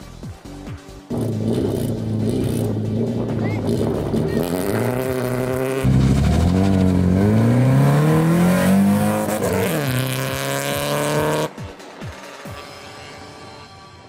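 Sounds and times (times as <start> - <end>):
car engine accelerating hard: 1.1 - 11.5.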